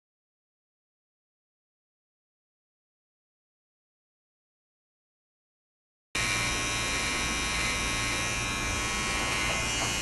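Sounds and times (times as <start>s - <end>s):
electric hair clippers buzzing: 6.2s - 10.0s.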